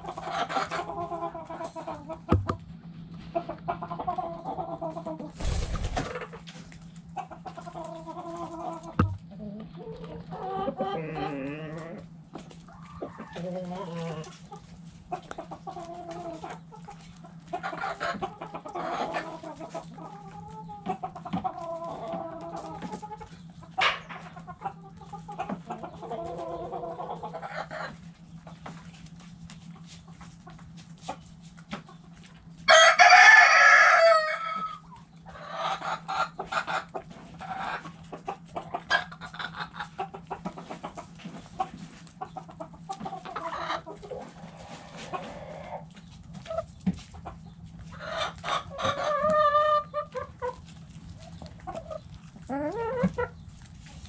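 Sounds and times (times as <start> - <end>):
steady low hum: 0.0 - 32.7
hens clucking: 0.0 - 54.0
rooster crowing: 32.7 - 34.8.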